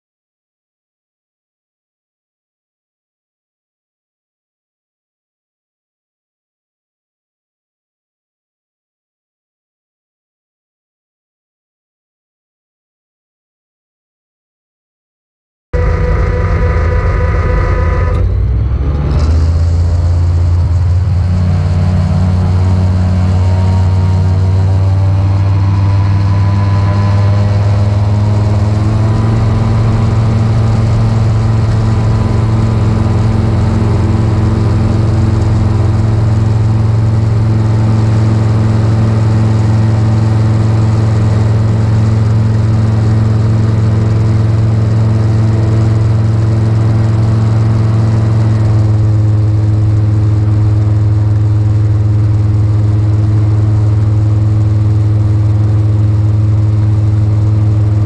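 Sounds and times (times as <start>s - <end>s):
aircraft engine and propeller drone: 15.8s - 58.0s.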